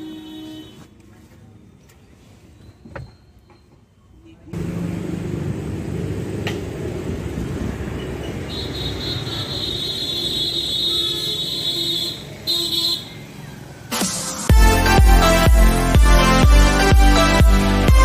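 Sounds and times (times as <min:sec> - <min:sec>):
road traffic rumble: 0:00.0 - 0:18.0
electronic music with a beat: 0:13.9 - 0:18.0.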